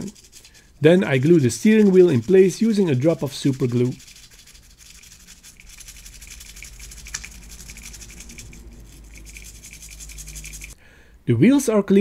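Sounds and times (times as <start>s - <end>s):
fingers rubbing plastic parts: 0.0s - 10.8s.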